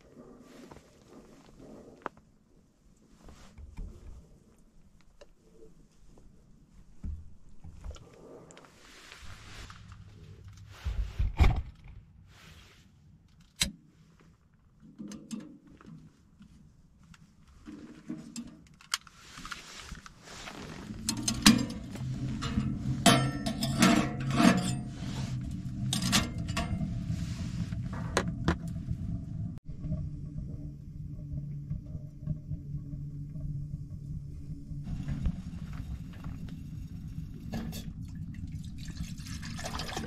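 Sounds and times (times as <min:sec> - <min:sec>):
wood fire rumbling and crackling: 0:00.0 - 0:12.8, 0:15.6 - 0:40.0
knocks and clinks of metal stove: 0:21.1 - 0:25.0, 0:25.8 - 0:27.0.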